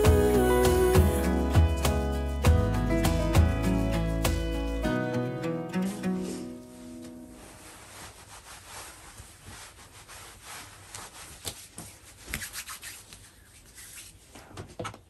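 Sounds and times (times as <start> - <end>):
hands rubbing cream into skin: 7.4 - 14.2.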